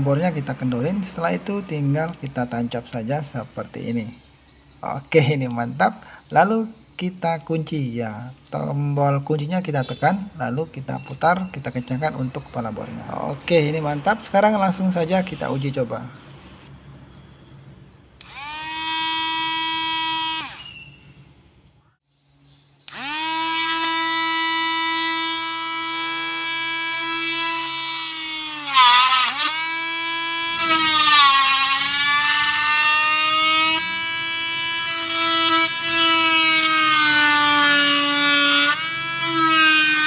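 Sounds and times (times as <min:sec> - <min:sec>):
electric motor whining: 0:18.2 - 0:21.0, 0:22.8 - 0:40.0
engraving bit scraping plastic: 0:22.9 - 0:40.0.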